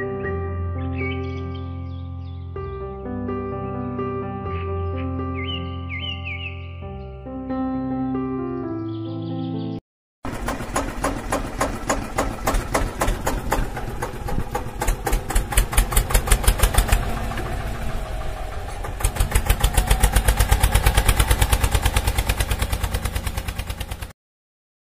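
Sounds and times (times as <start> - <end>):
tractor engine thudding: 10.3 - 24.1.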